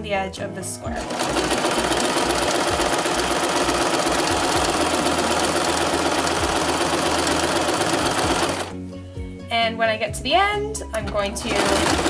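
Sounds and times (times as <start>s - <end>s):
sewing machine running: 0.9s - 8.8s, 11.1s - 12.0s.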